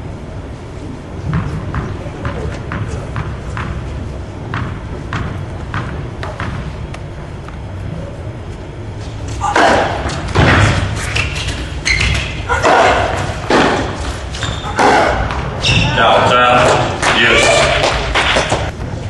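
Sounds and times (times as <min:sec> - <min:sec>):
tennis ball bouncing: 0:04.5 - 0:07.0
tennis racket hits echoing: 0:09.4 - 0:11.0, 0:11.6 - 0:15.6.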